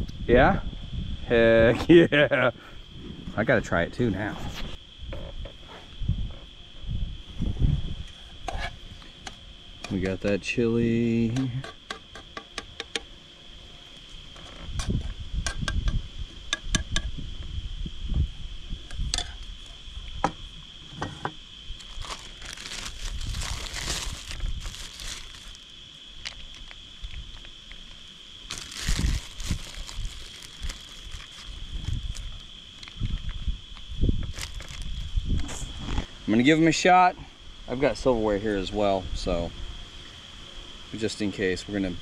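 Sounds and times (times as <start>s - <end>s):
plastic bag crinkling: 21.8s - 25.6s, 28.5s - 32.4s, 34.3s - 34.9s.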